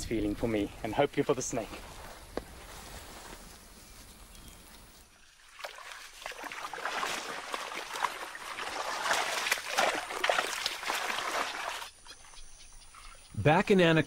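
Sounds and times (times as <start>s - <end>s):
water splashing and trickling: 5.0s - 13.3s.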